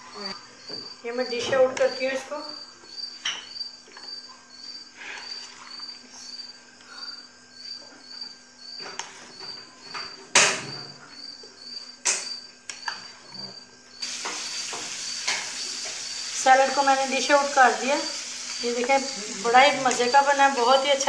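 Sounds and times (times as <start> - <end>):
cricket chirping: 0.0 - 21.0
steady hiss: 13.9 - 21.0.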